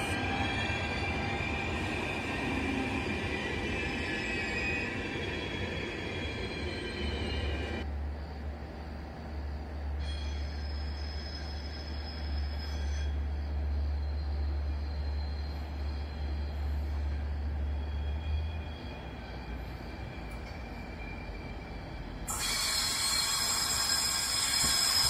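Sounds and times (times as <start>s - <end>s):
high wheel squeal: 10.0s - 25.0s
train running over points: 22.3s - 25.0s.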